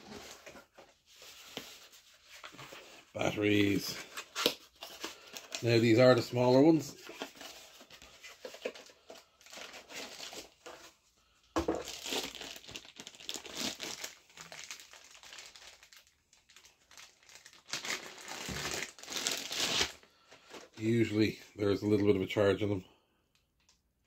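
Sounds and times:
plastic bag crinkling: 0:11.7 - 0:21.2.

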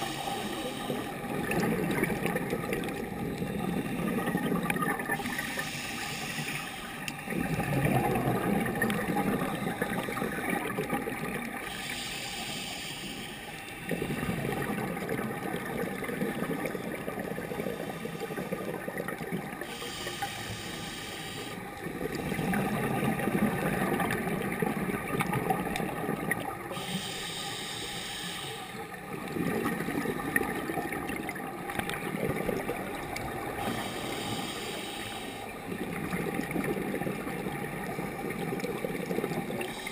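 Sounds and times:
regulator inhale hiss: 0:00.0 - 0:01.3, 0:05.1 - 0:07.3, 0:11.6 - 0:14.4, 0:17.6 - 0:18.7, 0:19.6 - 0:21.7, 0:26.7 - 0:29.0, 0:33.5 - 0:35.6, 0:39.7 - 0:39.9
exhaled bubbles underwater: 0:00.0 - 0:12.2, 0:13.5 - 0:27.4, 0:28.7 - 0:39.9.

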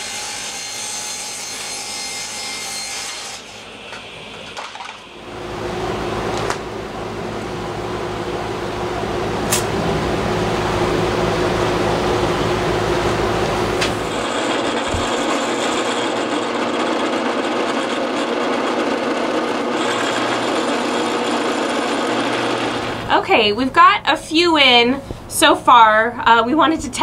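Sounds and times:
machine hum: 0:03.5 - 0:27.0
high motor whine: 0:03.6 - 0:18.4
drill press drilling wood: 0:13.4 - 0:23.1.

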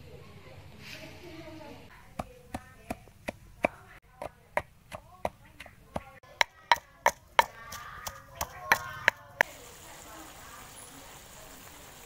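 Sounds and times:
pestle pounding in clay mortar: 0:02.1 - 0:09.5.

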